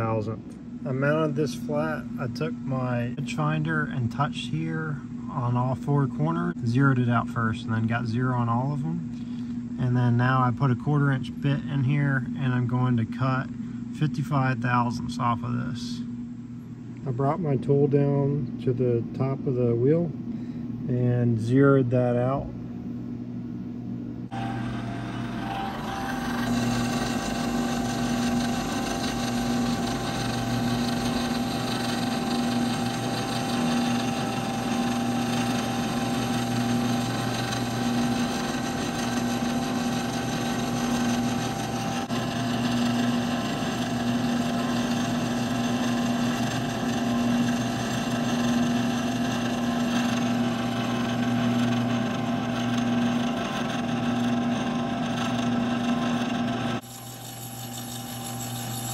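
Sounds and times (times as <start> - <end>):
milling machine hum: 0.0 - 21.6, 22.4 - 58.9
metal cutting noise: 24.3 - 58.9.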